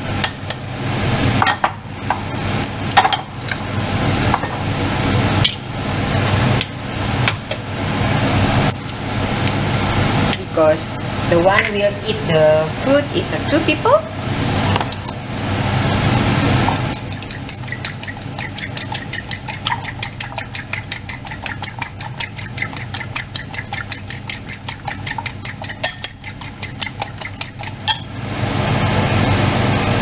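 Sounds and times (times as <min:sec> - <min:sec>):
steady low hum: 0:00.0 - 0:30.0
fork clicking against ceramic bowl: 0:16.8 - 0:28.0.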